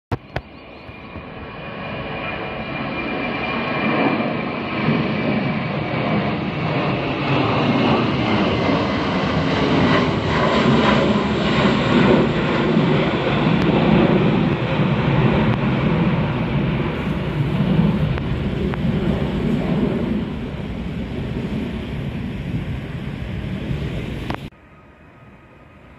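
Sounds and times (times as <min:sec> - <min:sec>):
jet airliner flying overhead: 0:00.1 - 0:25.9.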